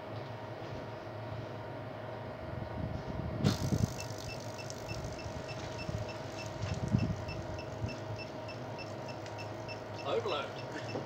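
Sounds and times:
electrical hum: 0.0s - 11.0s
low thumps with hiss: 2.9s - 8.1s
clamp meter beeping rapidly: 3.5s - 11.0s.

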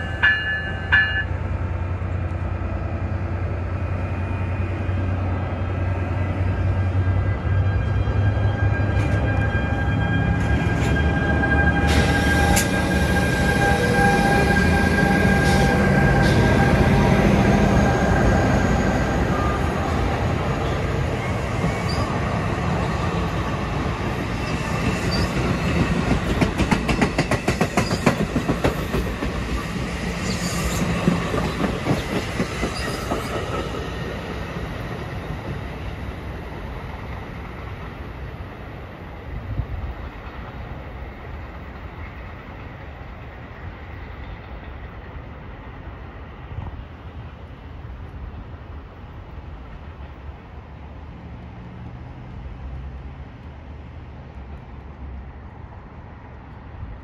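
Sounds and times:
diesel locomotive hum and whine: 0.0s - 57.0s
train wheels clicking over rail joints: 24.5s - 35.8s.

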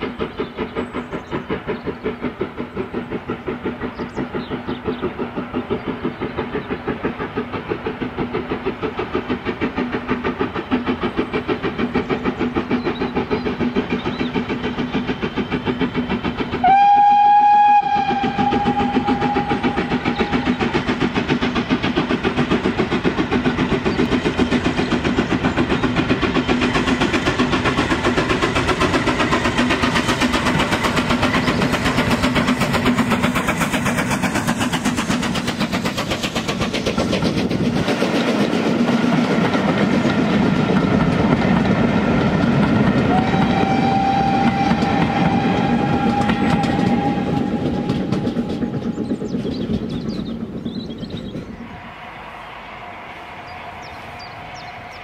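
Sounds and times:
steam locomotive exhaust beating: 0.0s - 55.0s
train coaches clattering on rails: 0.0s - 55.0s
steam whistle: 16.6s - 20.4s, 43.0s - 48.7s, 51.6s - 55.0s.

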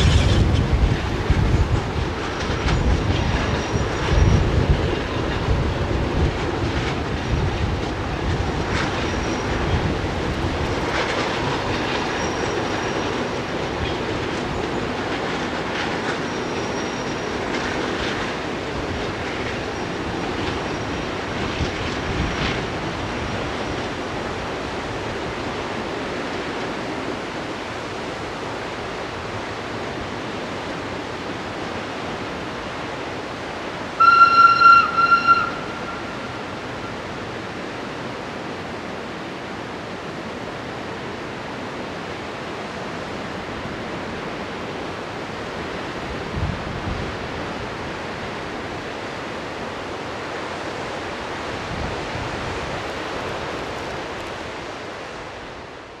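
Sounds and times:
river rushing: 0.0s - 56.0s
locomotive horn blast: 34.0s - 36.6s.

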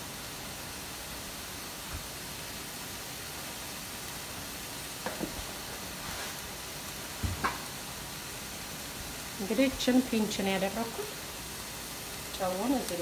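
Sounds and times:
meat sizzling in a frying pan: 0.0s - 13.0s.

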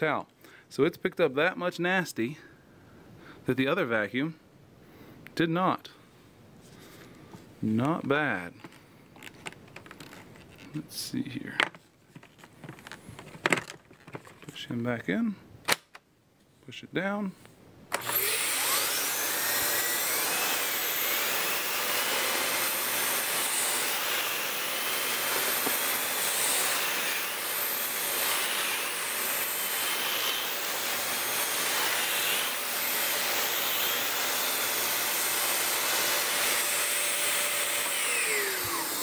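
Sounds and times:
vacuum cleaner running: 18.0s - 39.0s.

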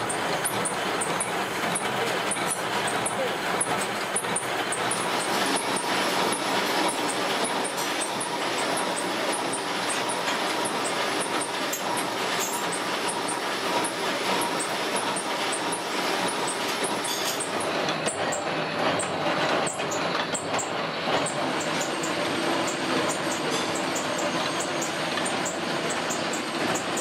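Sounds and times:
gear-cutting machine running: 0.0s - 27.0s.

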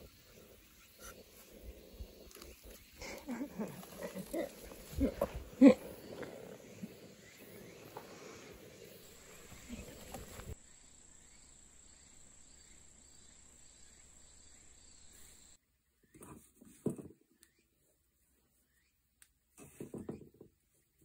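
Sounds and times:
insects singing: 0.0s - 15.6s
faint outdoor noise: 0.0s - 21.0s
hands rustling seeds and cloth: 1.1s - 10.6s.

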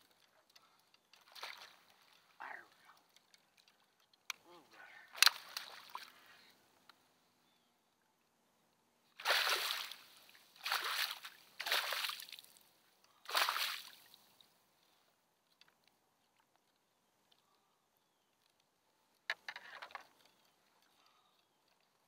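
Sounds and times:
faint small clicks: 0.0s - 2.3s, 2.9s - 4.4s, 5.1s - 6.1s, 14.3s - 17.6s, 18.3s - 22.0s
water splashing: 1.2s - 3.9s, 5.1s - 6.2s, 9.2s - 12.6s, 13.3s - 14.4s.

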